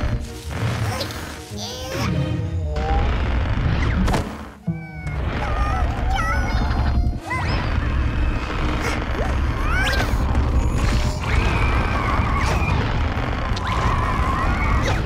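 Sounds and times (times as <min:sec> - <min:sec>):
cartoon music: 0:04.6 - 0:07.7.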